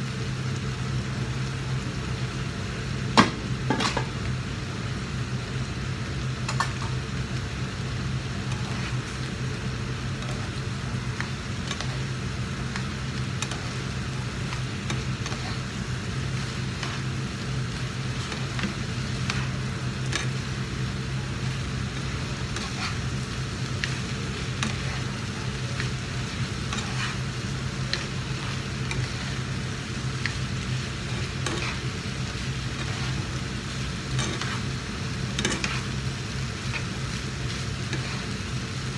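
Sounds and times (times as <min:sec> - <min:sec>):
rice sizzling in a frying pan: 0:00.0 - 0:38.9
steady low hum: 0:00.0 - 0:38.9
utensils scraping a pan: 0:22.5 - 0:23.0, 0:26.7 - 0:27.2, 0:31.4 - 0:31.9, 0:32.7 - 0:33.3, 0:34.1 - 0:34.7, 0:35.4 - 0:36.0.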